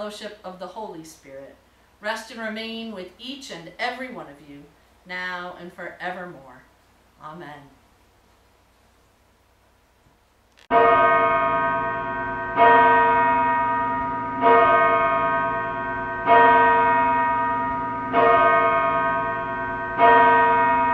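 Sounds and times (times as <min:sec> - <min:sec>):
church bell tolling: 0:10.7 - 0:20.9.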